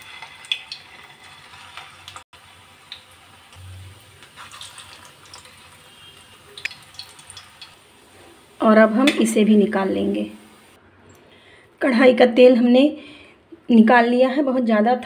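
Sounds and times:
oil sizzling with crackles: 0.0 - 10.8.

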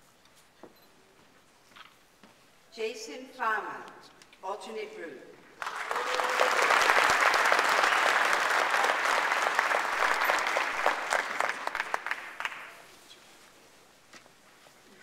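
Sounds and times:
audience applauding: 5.6 - 12.9.

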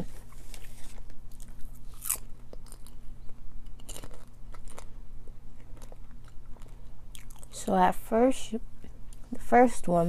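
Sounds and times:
faint steady hum: 0.0 - 10.0
person chewing popcorn: 0.2 - 7.6.

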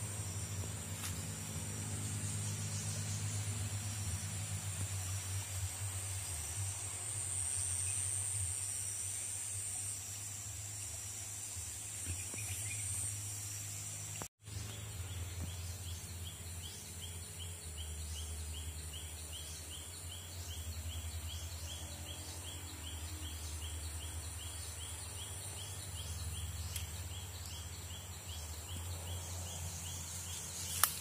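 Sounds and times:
high-pitched insect drone: 0.0 - 14.2
low steady hum: 0.0 - 31.0.

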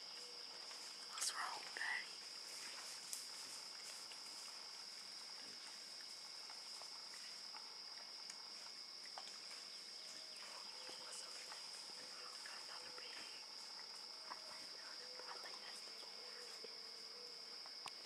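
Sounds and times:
insect chorus drone: 0.0 - 18.0
faint clicks and snaps: 7.5 - 8.5.

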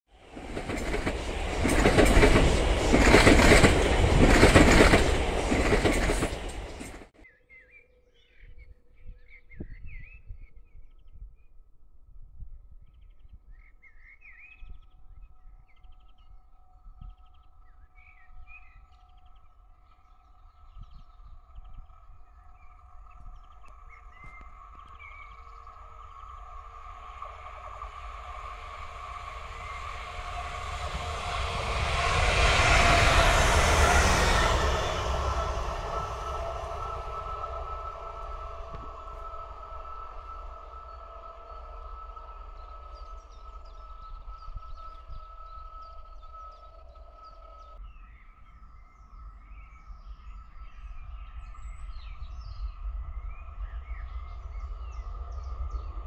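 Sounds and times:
distant diesel train hum: 0.1 - 7.2, 21.6 - 47.8
train passing close: 0.1 - 7.2, 21.5 - 47.8, 51.8 - 56.0.

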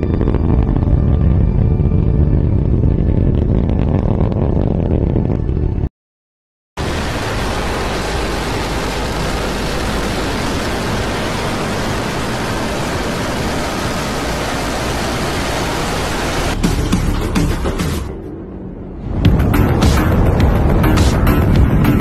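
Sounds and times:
rocket engine roar: 0.0 - 5.9, 6.8 - 16.6.

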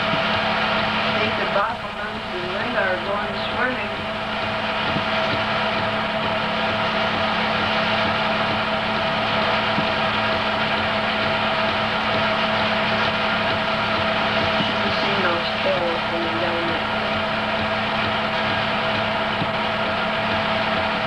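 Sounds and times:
constant hum: 0.0 - 21.0
film projector whirring: 0.0 - 21.0.

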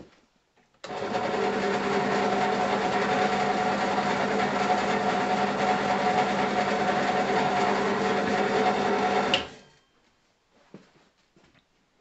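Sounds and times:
drill press humming and rattling: 0.8 - 9.6.

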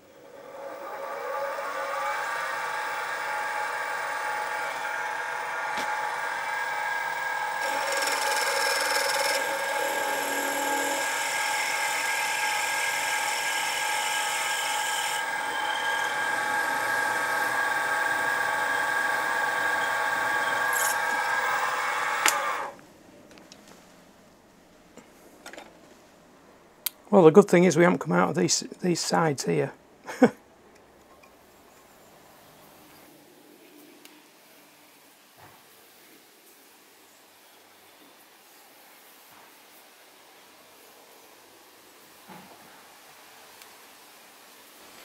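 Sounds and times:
mill motor whining: 0.1 - 22.8
drill boring into metal: 0.3 - 22.7.

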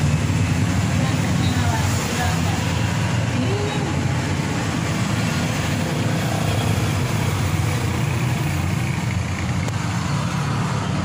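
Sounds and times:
vehicle engine rumbling: 0.0 - 11.0.

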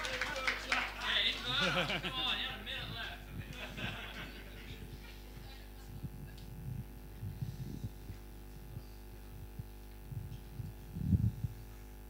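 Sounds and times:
electrical mains hum: 0.0 - 12.0
soft low thumps: 5.9 - 11.7.

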